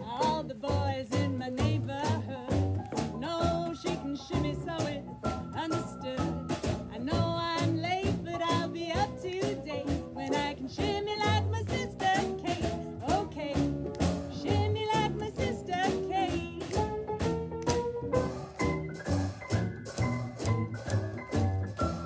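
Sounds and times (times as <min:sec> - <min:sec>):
woman singing jazz: 0:00.0 - 0:17.3
drum kit swing beat: 0:00.0 - 0:22.0
piano: 0:00.0 - 0:22.0
upright double bass: 0:00.0 - 0:22.0.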